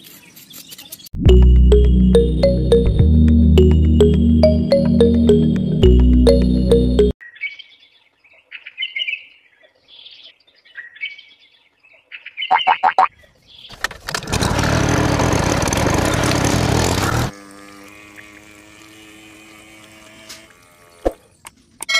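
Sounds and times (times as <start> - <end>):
birds chirping: 10.0 - 13.8
small water pump motor whirring: 14.2 - 21.4.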